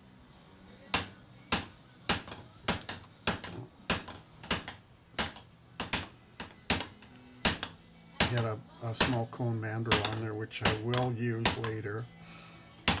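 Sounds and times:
hammer striking hot steel pipe: 0.9 - 9.2, 9.9 - 11.8.

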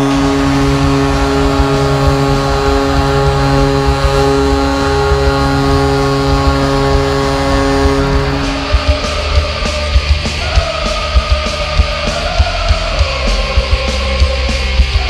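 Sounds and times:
goal horn blasting: 0.0 - 10.0
noisy arena crowd: 0.0 - 15.0.

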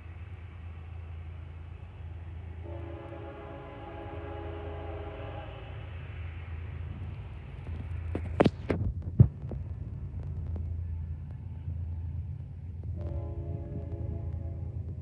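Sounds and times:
steady low rumble: 0.0 - 15.0
distant locomotive horn: 2.5 - 5.9, 13.0 - 15.0.

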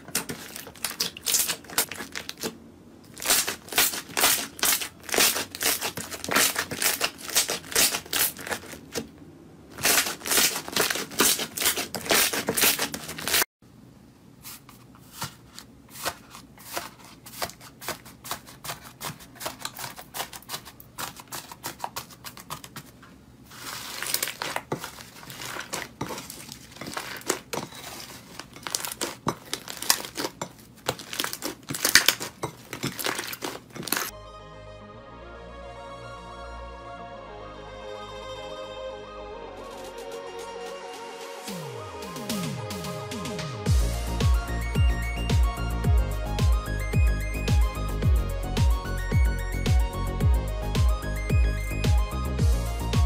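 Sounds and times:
slime crackling and popping: 0.0 - 2.5, 3.1 - 9.0, 9.8 - 13.4, 23.6 - 34.1
slime being squished: 0.0 - 9.0, 9.8 - 13.4, 23.5 - 34.1
sticky tearing of slime: 0.1 - 2.5, 3.1 - 9.0, 9.8 - 13.4, 23.5 - 34.1.

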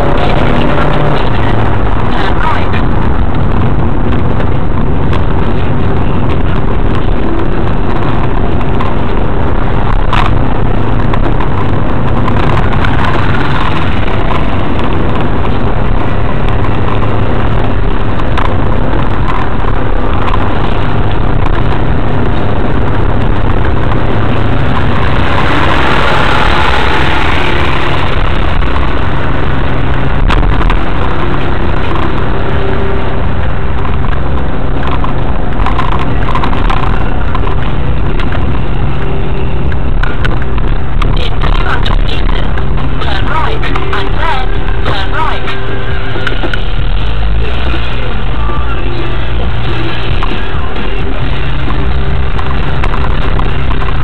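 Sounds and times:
car engine and tyre rumble: 0.0 - 54.0.

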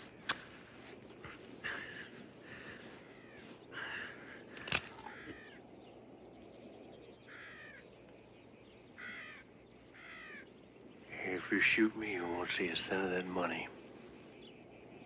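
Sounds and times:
crows cawing: 1.7 - 5.7, 7.2 - 7.9, 8.9 - 10.5.

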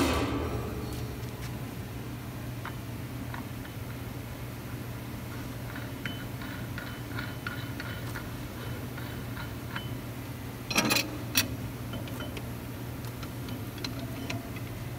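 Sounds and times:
steady low hum: 0.0 - 10.6.

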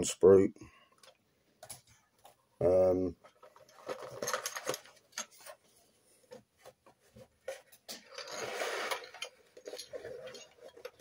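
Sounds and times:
plastic rustle: 3.2 - 5.7, 7.0 - 11.0.

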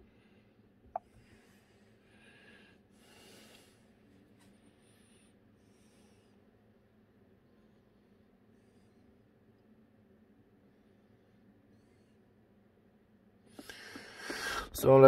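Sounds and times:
faint breaths: 0.0 - 6.6, 13.5 - 14.8.

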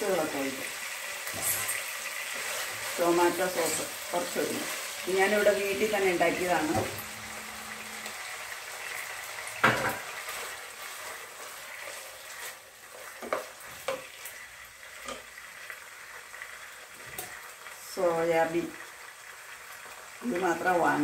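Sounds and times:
chicken sizzling in oil: 0.0 - 21.0
wooden spatula stirring: 1.3 - 8.7, 10.0 - 15.3.

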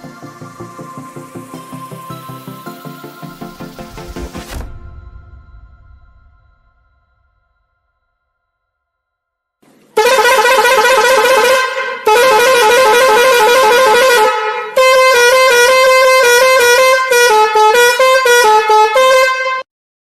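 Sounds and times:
musical vehicle horn playing a tune: 10.0 - 19.7.

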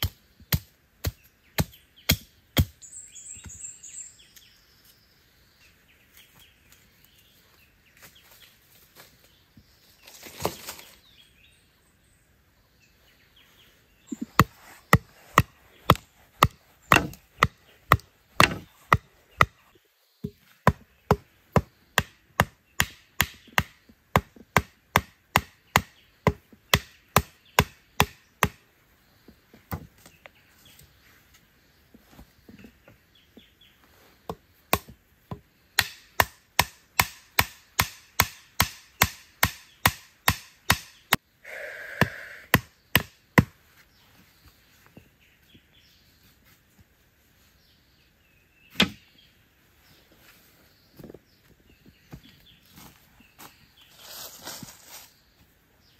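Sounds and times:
wood knocking on stakes: 14.1 - 19.6, 20.2 - 28.6, 29.3 - 30.1, 34.2 - 41.2, 42.5 - 43.6, 48.7 - 49.1.

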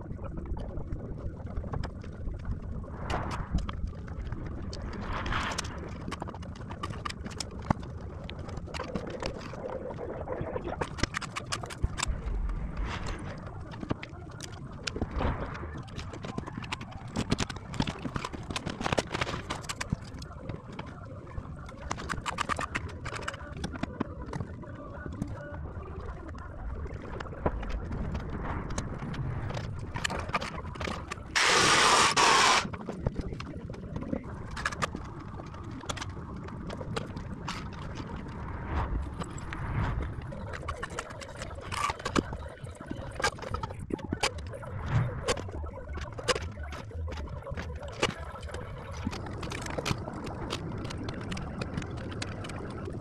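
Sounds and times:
knocks and scrapes of blocks: 10.8 - 20.6, 27.3 - 33.2
loud hissing burst: 31.4 - 32.7.

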